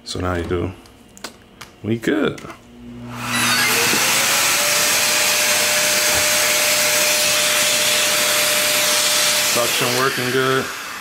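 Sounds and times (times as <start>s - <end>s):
dust extractor running: 2.9s - 11.0s.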